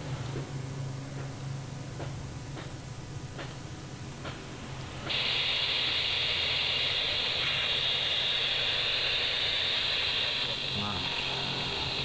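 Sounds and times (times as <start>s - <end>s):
radio receiver hiss: 5.0s - 12.0s.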